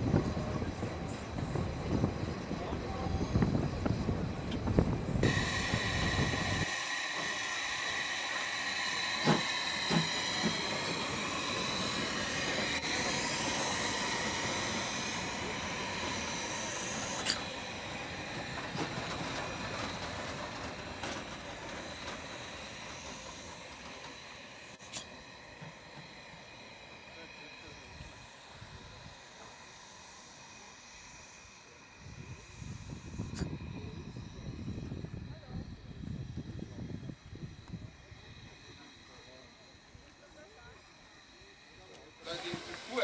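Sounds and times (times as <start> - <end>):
carriages rumbling on track: 0.0 - 24.7
steam locomotive hissing: 0.0 - 43.0.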